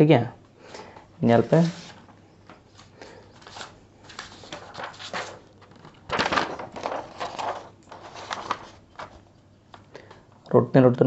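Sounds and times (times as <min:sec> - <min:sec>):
fingers rustling over paper: 0:01.4 - 0:09.9.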